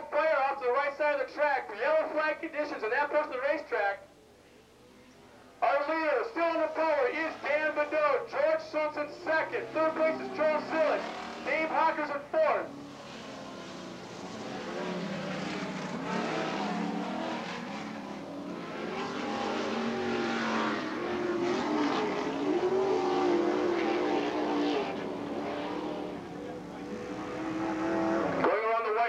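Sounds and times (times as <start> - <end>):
racing truck engines revving: 5.6 - 28.5.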